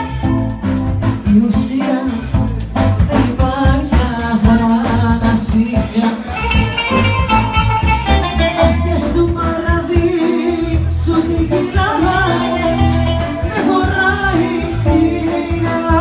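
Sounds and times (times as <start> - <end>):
plucked-string music with bass: 0.0 - 16.0
woman singing into microphone: 8.9 - 16.0.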